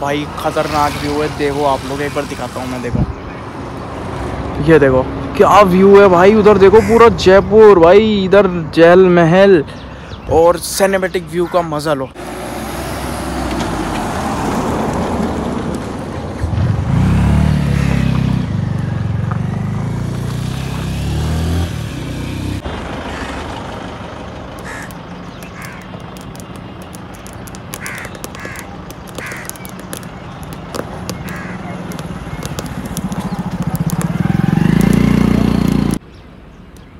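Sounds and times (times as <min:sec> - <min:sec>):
car engine passing: 0:12.2 - 0:25.7, 0:30.2 - 0:36.0
crow cawing: 0:23.0 - 0:23.5, 0:24.6 - 0:26.0, 0:27.7 - 0:29.7, 0:31.1 - 0:31.8.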